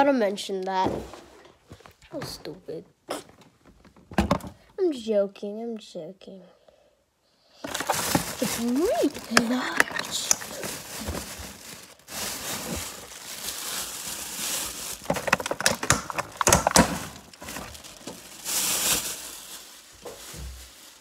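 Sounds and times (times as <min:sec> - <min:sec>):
rustling on phone microphone: 0:07.6 - 0:21.0.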